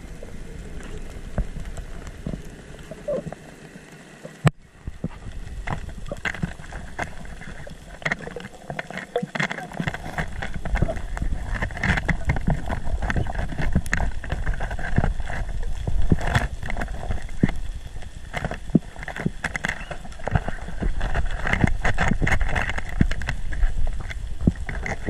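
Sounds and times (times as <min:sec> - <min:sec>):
sharp clicks and crackles: 0:00.0 - 0:25.0
water rushing underwater: 0:00.0 - 0:25.0.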